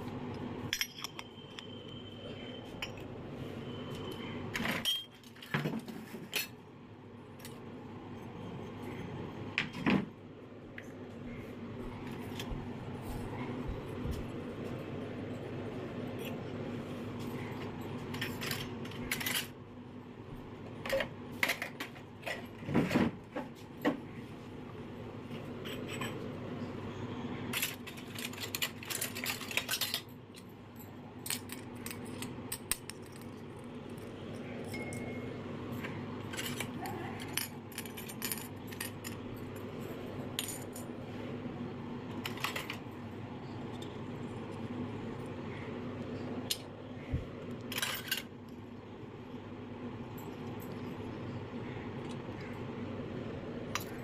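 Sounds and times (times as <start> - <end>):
steady low hum: 0.0 - 54.0
metal toy dishes clinking: 0.7 - 1.8, 4.7 - 5.5, 27.5 - 35.4, 36.2 - 40.9, 53.7 - 54.0.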